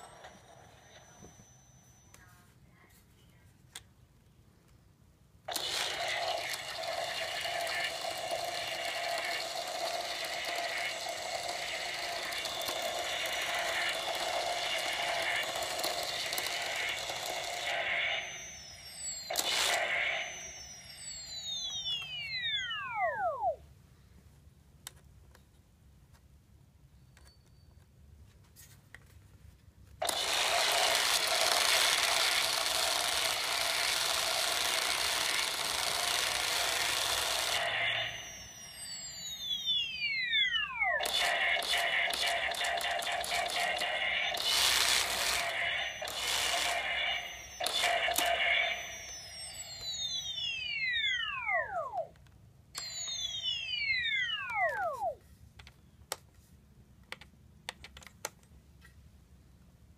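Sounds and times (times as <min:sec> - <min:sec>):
electronic firing sound effect: 0:05.5 - 0:23.6, 0:30.0 - 0:52.1
falling electronic whines: 0:05.5 - 0:23.6, 0:30.0 - 0:52.1, 0:52.8 - 0:55.2.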